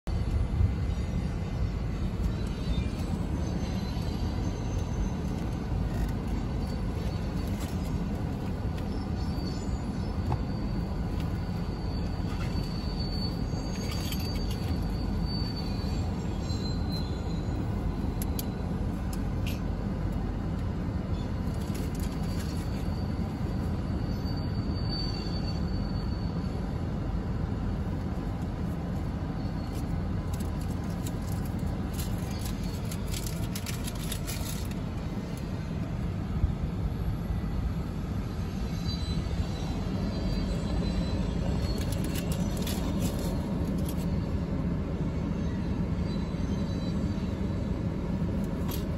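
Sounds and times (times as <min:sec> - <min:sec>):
train wheels rumbling on rail: 0:00.1 - 0:48.9
faint high wheel squeal: 0:00.2 - 0:48.9
clicks and clatter: 0:29.7 - 0:34.8.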